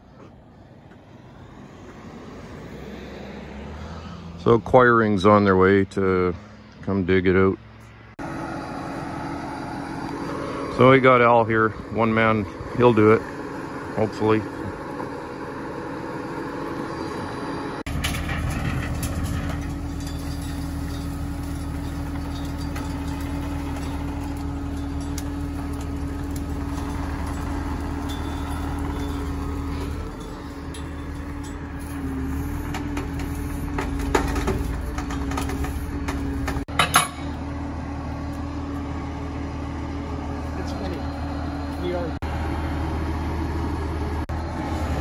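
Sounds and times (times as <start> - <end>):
diesel engine running: 0.0 - 45.0
sharp metallic clanks: 17.9 - 37.4.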